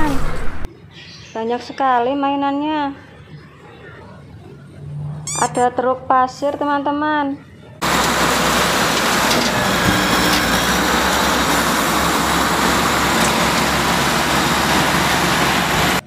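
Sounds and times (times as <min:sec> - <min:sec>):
dump truck engine running: 0:07.8 - 0:16.0
soil rushing out: 0:07.8 - 0:16.0.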